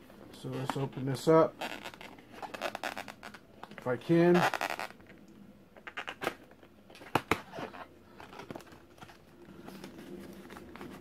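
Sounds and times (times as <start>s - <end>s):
cardboard rustling and scraping: 7.0s - 11.0s.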